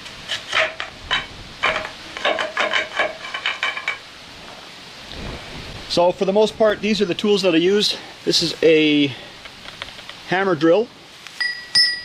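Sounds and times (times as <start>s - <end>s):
broom handle scraping on concrete: 0.0s - 4.0s.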